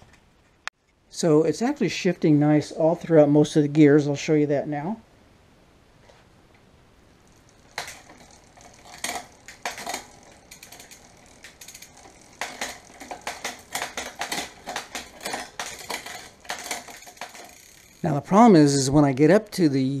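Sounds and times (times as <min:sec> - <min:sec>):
bicycle chain rattle: 0:07.2 - 0:18.9
bicycle rear wheel spinning: 0:07.2 - 0:19.0
bicycle gear shift clicks: 0:07.7 - 0:17.9.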